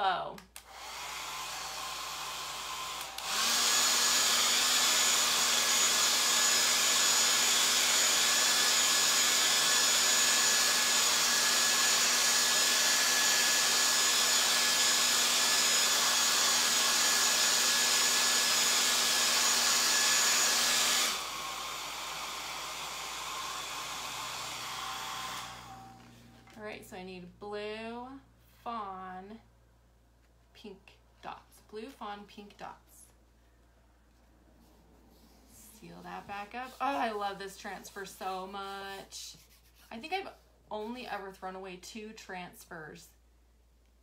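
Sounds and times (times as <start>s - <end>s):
hair dryer blowing: 0.6s - 26.5s, 35.7s - 39.0s.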